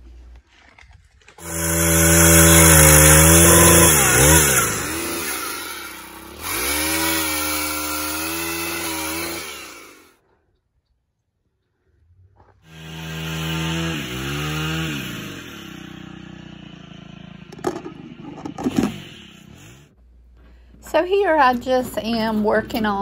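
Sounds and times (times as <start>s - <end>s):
pole saw cutting branch: 0.8s - 10.1s, 12.7s - 19.9s.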